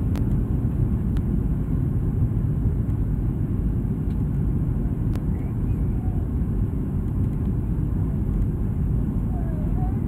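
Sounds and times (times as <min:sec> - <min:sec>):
airliner cabin rumble: 0:00.0 - 0:10.0.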